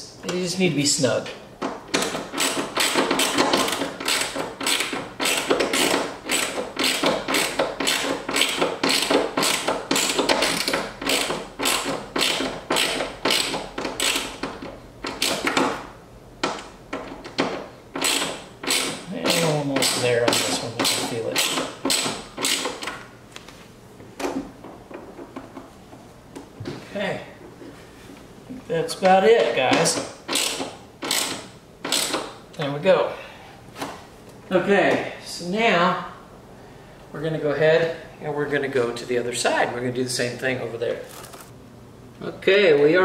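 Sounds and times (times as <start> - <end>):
socket ratchet clicking: 1.9 - 15.7, 16.4 - 23.0, 29.9 - 32.3.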